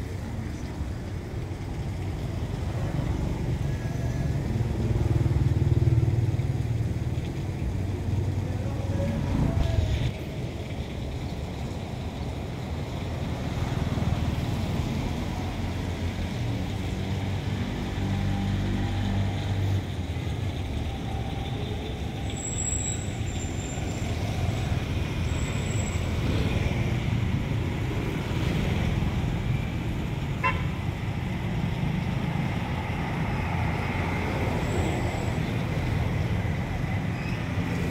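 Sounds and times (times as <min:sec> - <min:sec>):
vehicles passing on road: 0:00.0 - 0:37.9.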